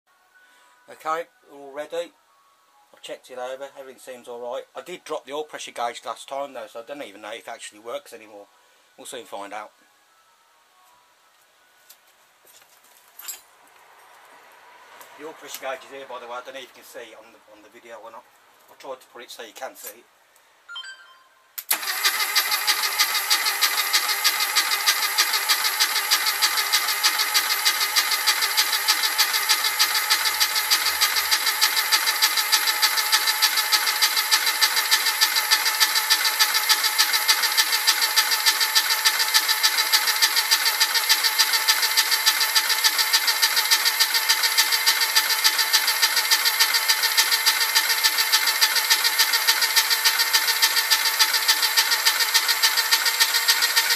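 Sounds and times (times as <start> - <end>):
starter motor cranking engine: 21.7 - 53.9.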